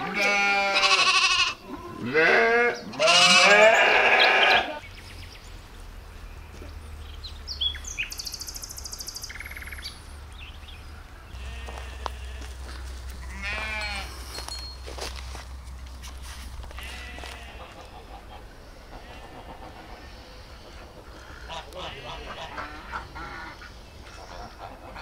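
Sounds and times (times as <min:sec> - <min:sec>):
lambs bleating: 0:00.0 - 0:04.8, 0:11.4 - 0:14.2, 0:16.7 - 0:17.9, 0:19.0 - 0:19.4.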